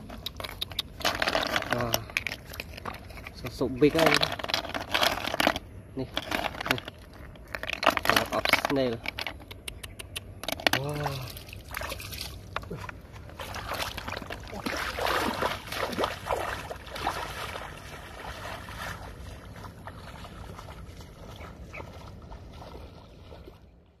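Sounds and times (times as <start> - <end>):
footsteps splashing through water: 11.2 - 24.0.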